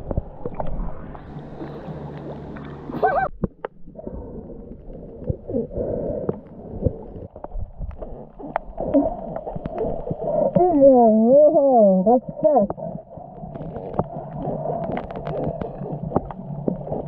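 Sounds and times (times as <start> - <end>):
muffled underwater sound: 0.0 - 17.0
sharp underwater clicks: 6.2 - 10.8, 12.6 - 17.0.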